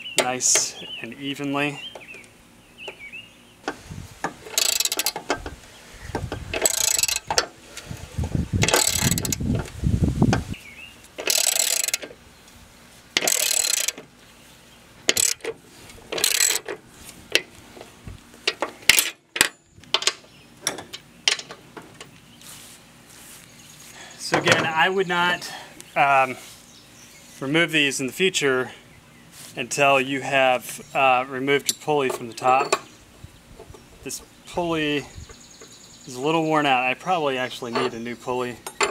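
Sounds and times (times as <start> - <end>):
socket ratchet clicking: 4.5 - 5.2, 6.6 - 7.5, 8.6 - 9.4, 11.2 - 12.1, 13.2 - 14.0, 15.1 - 15.5, 16.2 - 16.7.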